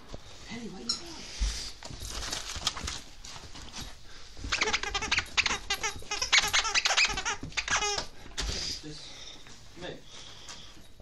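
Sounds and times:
squeaky toy squeaking: 0:04.5 - 0:08.1.

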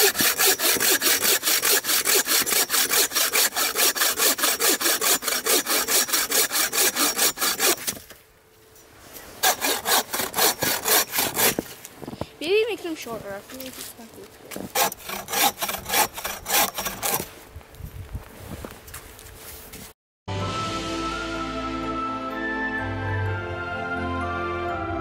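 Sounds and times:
bow saw cutting log: 0:00.0 - 0:08.2, 0:09.4 - 0:11.7, 0:14.5 - 0:17.3.

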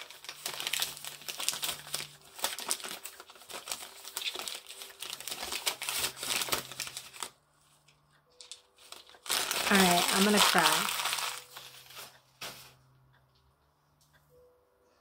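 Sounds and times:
tissue paper crinkling: 0:00.0 - 0:07.4, 0:08.4 - 0:12.8.

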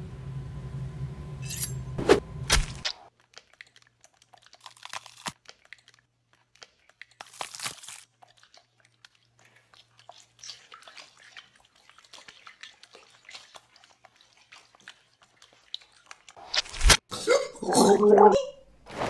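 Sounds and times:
gore crunching and tearing: 0:04.4 - 0:06.0, 0:06.6 - 0:08.6.

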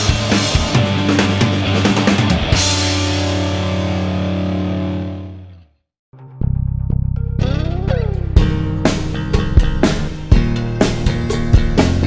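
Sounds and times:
rock drums: 0:00.0 - 0:05.5, 0:07.2 - 0:12.0
electric guitar chord: 0:00.0 - 0:06.4.

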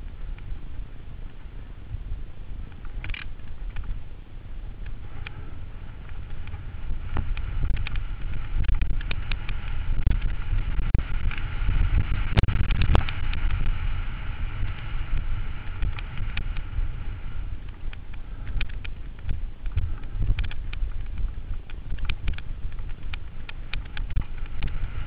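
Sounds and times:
bike rattling: 0:00.0 - 0:25.0
wind buffeting microphone: 0:00.0 - 0:25.0
small clicks and knocks: 0:02.7 - 0:04.0, 0:06.0 - 0:13.8, 0:14.6 - 0:16.7, 0:17.6 - 0:25.0.

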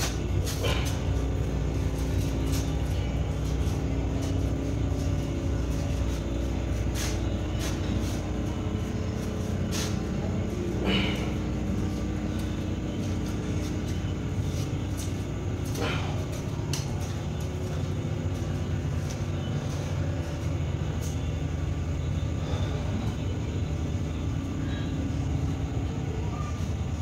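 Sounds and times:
vehicle engine hum: 0:00.0 - 0:27.0.

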